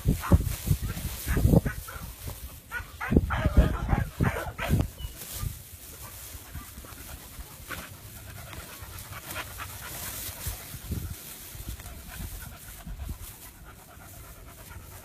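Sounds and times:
dog panting: 6.4s - 15.0s.

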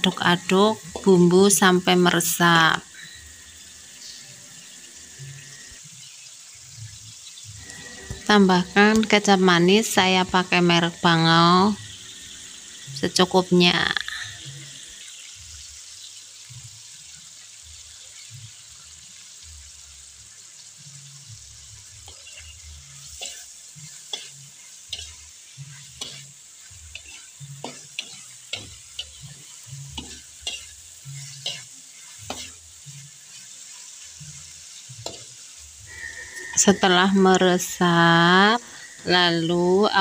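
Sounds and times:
food sizzling in a pan: 0.0s - 40.0s
spatula scraping a pan: 21.9s - 37.4s.

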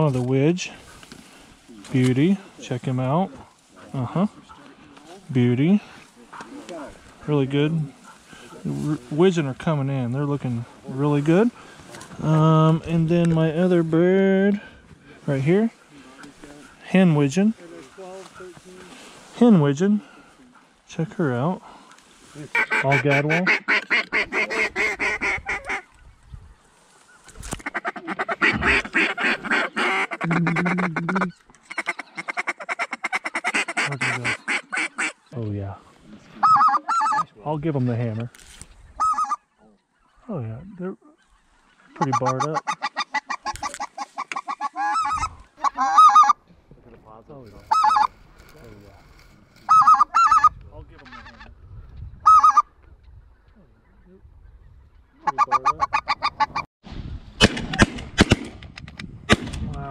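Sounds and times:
duck call quacking: 22.5s - 25.8s, 27.6s - 35.2s, 36.4s - 37.2s, 39.0s - 39.4s, 42.0s - 46.4s, 47.7s - 48.1s, 49.7s - 50.5s, 52.3s - 52.7s, 55.2s - 56.7s.

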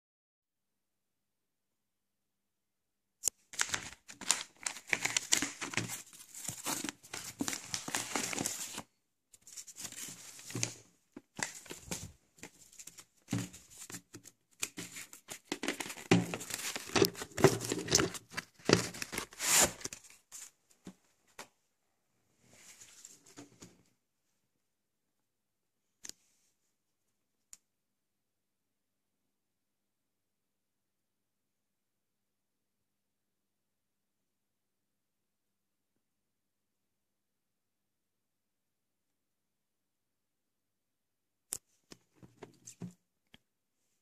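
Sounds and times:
cardboard and paper tearing: 15.6s - 20.0s.

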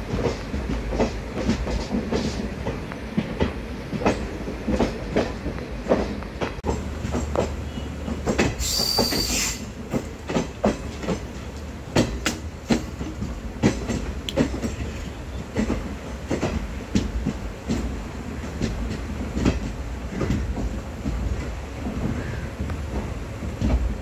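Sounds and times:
train rumbling: 0.0s - 24.0s
wheels knocking over rail joints: 0.1s - 24.0s
hiss with thin squeal: 8.6s - 9.6s.

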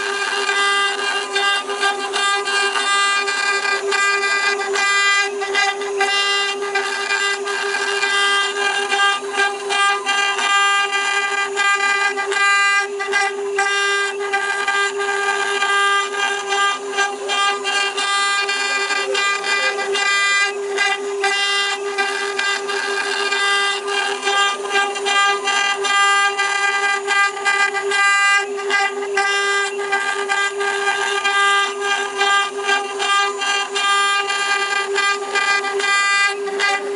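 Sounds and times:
bit cutting wood fluttering: 0.0s - 36.9s
router spindle whining: 0.0s - 36.9s.

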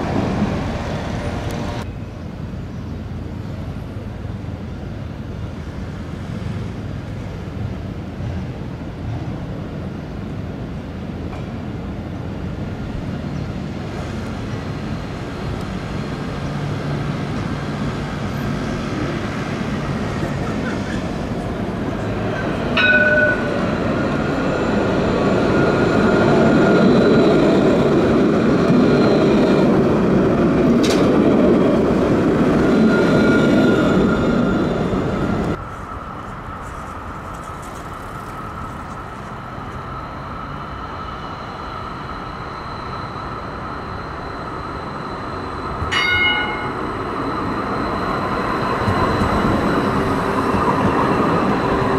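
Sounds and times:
electric tram passing: 0.0s - 51.9s
high ring: 22.8s - 23.7s, 43.0s - 48.3s.

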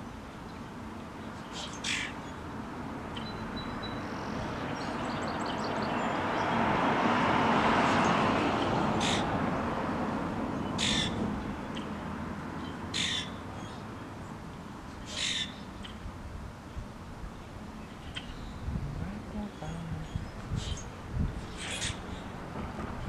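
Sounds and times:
harsh bird calls: 1.4s - 2.4s, 8.0s - 9.4s, 10.6s - 12.0s, 12.6s - 13.8s, 14.9s - 16.0s, 17.8s - 22.4s
broad rushing noise: 14.4s - 23.0s.

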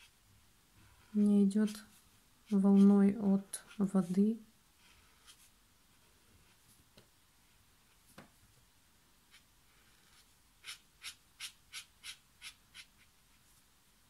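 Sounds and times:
pen scratching on rough paper: 0.8s - 4.2s, 9.3s - 13.1s.

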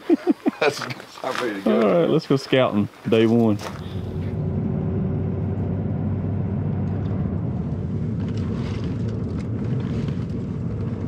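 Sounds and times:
engine and road rumble: 3.3s - 11.0s.

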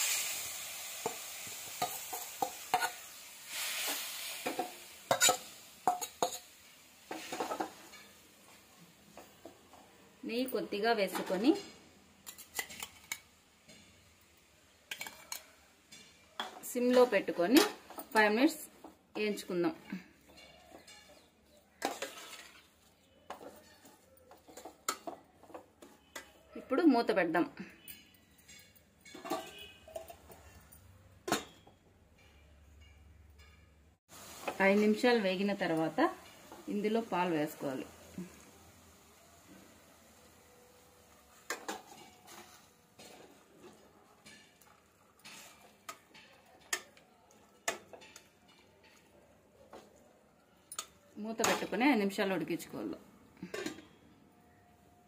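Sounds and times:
metal spoon scraping a pot: 11.2s - 14.0s, 14.9s - 18.4s, 20.2s - 26.4s, 27.9s - 30.7s, 41.3s - 50.0s, 53.4s - 54.0s.

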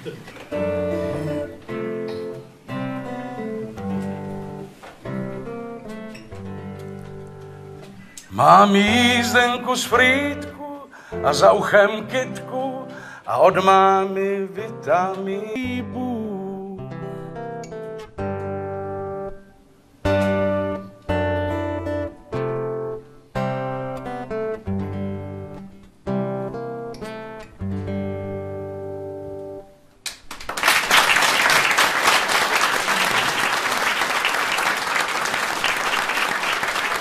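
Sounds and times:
acoustic guitar strummed chords: 0.5s - 29.9s
audience applause: 30.1s - 37.0s.

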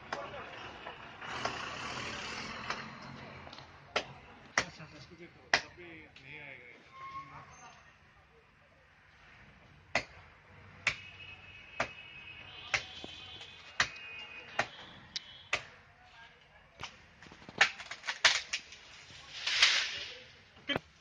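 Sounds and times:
blade chopping tree branch: 13.8s - 14.0s, 15.5s - 15.8s
leaves rustling: 18.1s - 20.5s.

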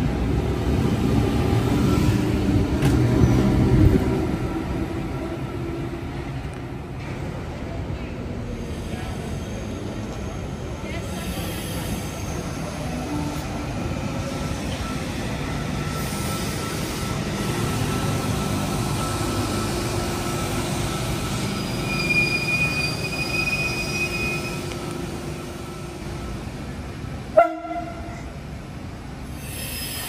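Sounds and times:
electric train rumbling on track: 0.0s - 30.0s
high wheel squeal: 8.6s - 13.4s, 14.3s - 26.2s, 29.3s - 30.0s.

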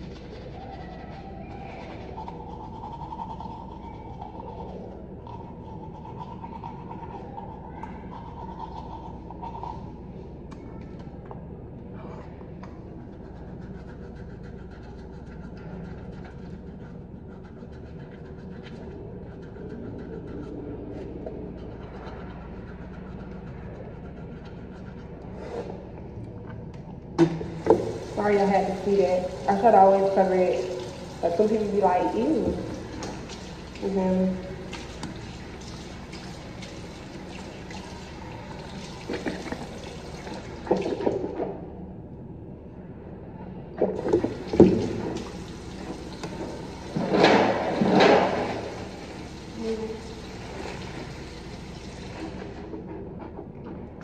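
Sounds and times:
sink tap running: 27.2s - 35.3s.

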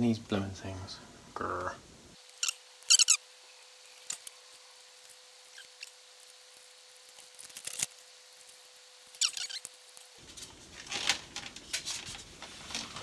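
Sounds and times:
squeaky cable snips: 9.1s - 9.8s.

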